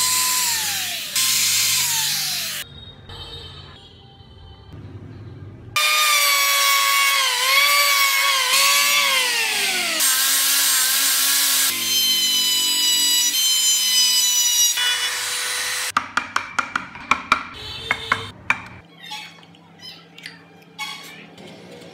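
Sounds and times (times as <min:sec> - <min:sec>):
sander on wood: 0:05.8 - 0:15.9.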